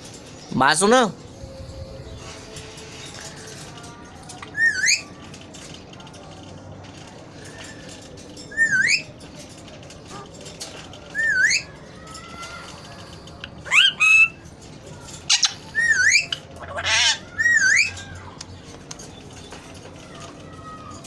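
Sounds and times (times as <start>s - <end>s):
parakeets calling loudly: 13.5s - 14.4s, 15.3s - 18.4s.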